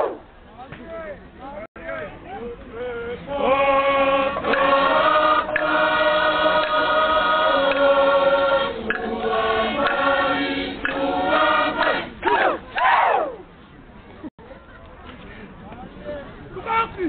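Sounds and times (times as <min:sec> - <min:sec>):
group singing chant in harmony: 0:03.2 - 0:12.6.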